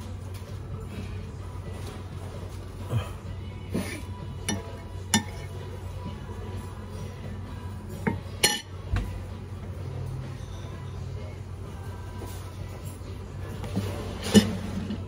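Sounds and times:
cutlery and dishes clinking: 3.8s - 5.5s, 8.0s - 8.7s, 13.7s - 15.0s.

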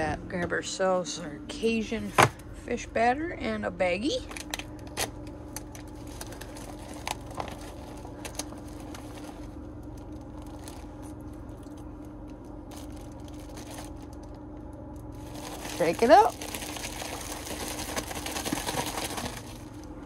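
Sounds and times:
steady low hum: 0.0s - 20.0s
plastic bag and box crinkling: 4.2s - 20.0s.

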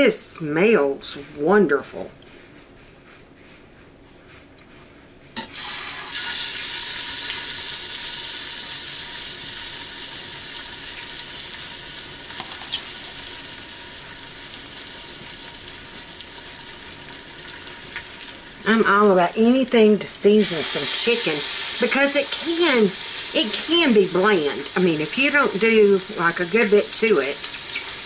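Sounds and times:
chicken sizzling in hot oil: 5.4s - 19.1s, 20.3s - 28.0s.

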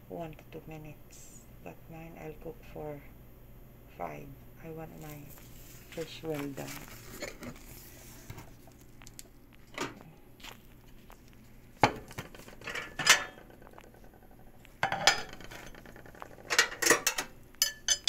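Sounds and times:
kitchenware clinking and knocking: 11.8s - 18.0s.

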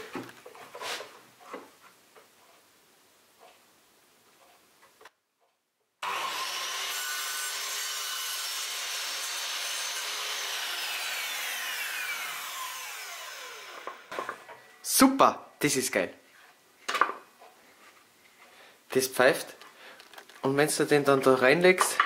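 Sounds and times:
mitre saw cutting wood: 6.0s - 14.4s
saw blade spinning down whine: 10.6s - 14.1s.

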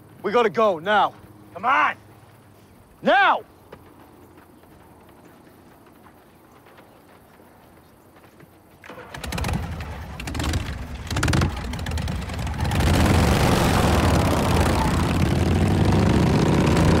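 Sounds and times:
motorcycles pulling away: 8.8s - 17.0s
motorcycle engines revving: 8.9s - 17.0s.

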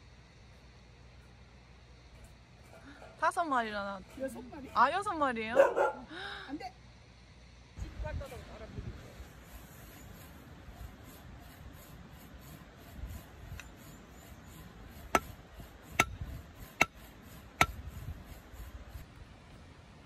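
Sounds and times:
hammer knocking logs: 15.0s - 17.0s.

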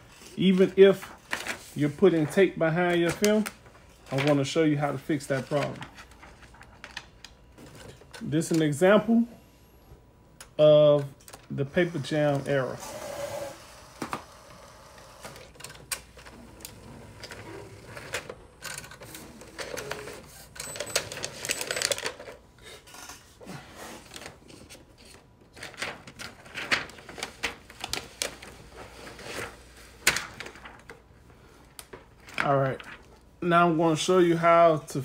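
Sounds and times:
printer whirring: 11.0s - 22.0s.

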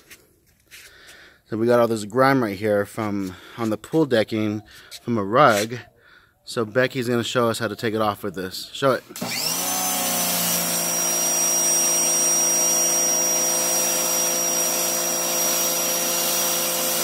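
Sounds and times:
electric pressure washer running: 9.1s - 17.0s
water jet spraying concrete: 13.5s - 17.0s.

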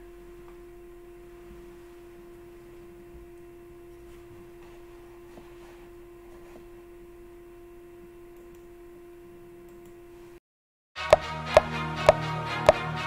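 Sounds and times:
faint electrical hum: 0.0s - 10.4s.

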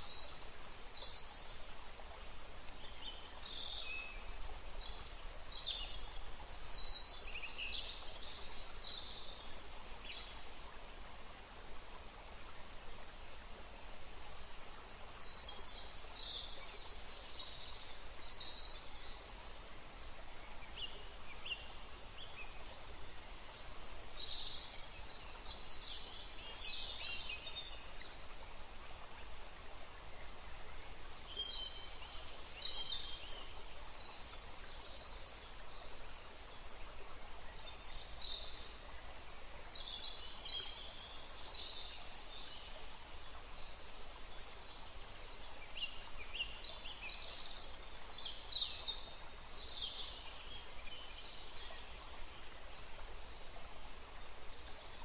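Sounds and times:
steady background hiss: 0.0s - 55.0s.

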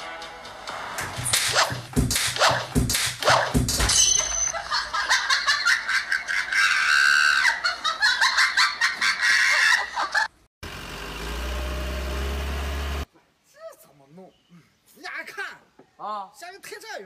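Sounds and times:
high-pitched laughter: 4.4s - 10.4s.

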